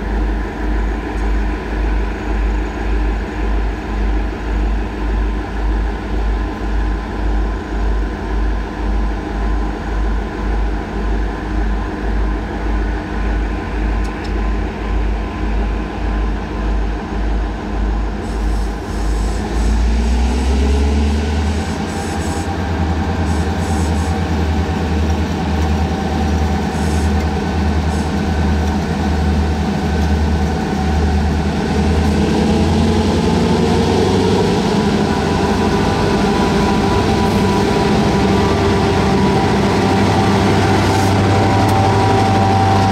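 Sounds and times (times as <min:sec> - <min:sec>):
diesel locomotives idling: 0:00.0 - 0:42.9
locomotive engines throttling up: 0:18.2 - 0:42.9.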